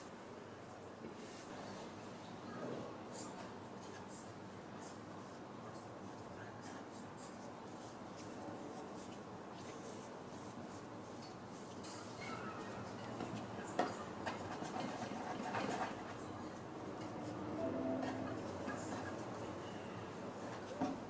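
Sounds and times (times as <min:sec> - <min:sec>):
hands rubbing bread dough: 0:04.6 - 0:13.6.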